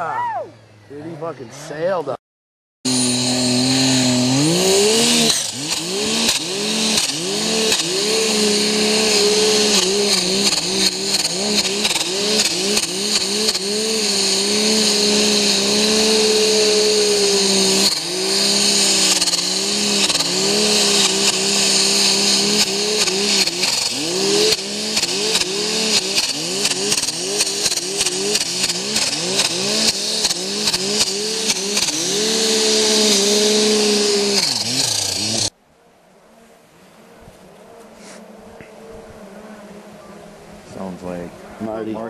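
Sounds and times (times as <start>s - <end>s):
snowmobile engine revving: 2.9s - 35.5s.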